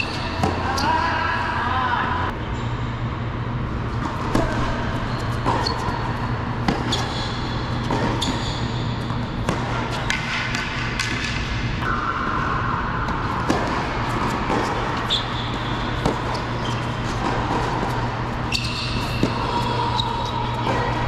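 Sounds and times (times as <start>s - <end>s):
rackets striking tennis ball: 0.0s - 1.0s, 4.0s - 12.0s, 13.0s - 21.0s
steady low hum: 0.0s - 21.0s
ball bouncing: 6.6s - 12.0s, 13.0s - 19.6s.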